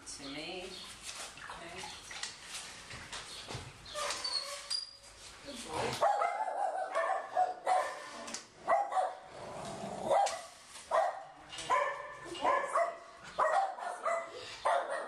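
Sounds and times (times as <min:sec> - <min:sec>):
dog barking: 0:06.0 - 0:09.3, 0:10.1 - 0:15.0.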